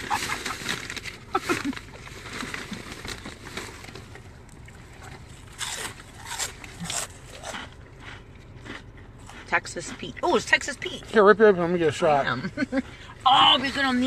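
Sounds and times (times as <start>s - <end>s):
plastic packaging rustling: 0.0s - 4.5s.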